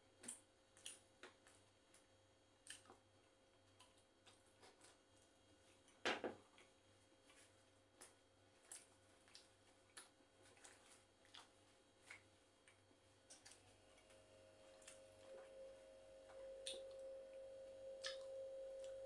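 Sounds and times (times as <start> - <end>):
chewing mouth clicks and smacks: 0.2 - 1.4, 2.6 - 3.0, 5.8 - 14.1.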